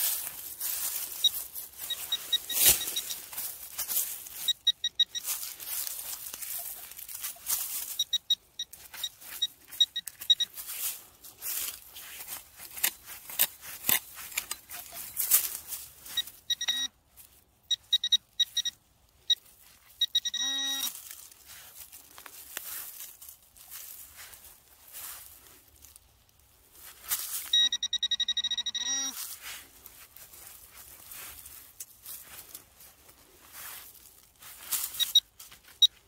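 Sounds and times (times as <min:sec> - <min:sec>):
hand pick scraping soil: 0:00.0 - 0:08.1, 0:08.8 - 0:16.8
metal detector beeping: 0:00.0 - 0:17.0, 0:17.6 - 0:21.1, 0:27.2 - 0:29.4, 0:34.5 - 0:36.0
wavering detector tone: 0:00.8 - 0:05.7, 0:16.1 - 0:16.9, 0:20.0 - 0:20.9, 0:27.4 - 0:29.2.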